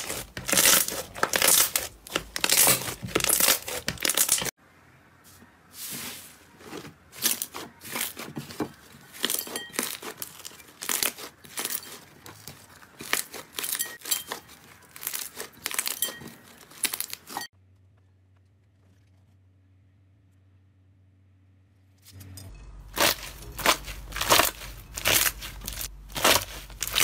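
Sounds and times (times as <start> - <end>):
slime crackling and popping: 0.0 - 4.5, 7.2 - 17.4, 23.0 - 27.0.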